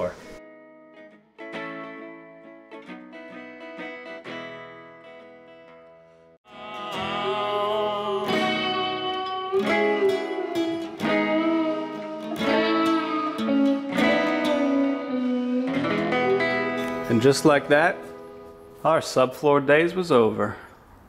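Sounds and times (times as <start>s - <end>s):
plucked guitar music: 0.4s - 19.2s
strummed guitar chords: 0.4s - 19.5s.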